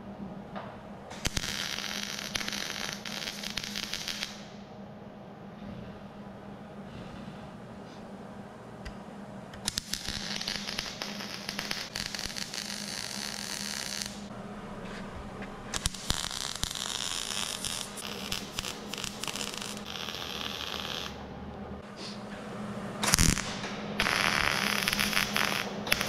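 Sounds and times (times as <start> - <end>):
welder arc crackling: 1.1 - 4.6, 8.8 - 14.3, 15.7 - 21.2, 23.0 - 26.0.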